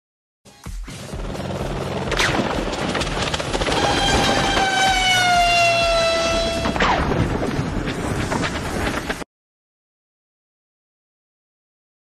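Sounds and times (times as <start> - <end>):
helicopter rotor rumble: 1.0 - 9.2
whine falling in pitch: 3.6 - 7.4.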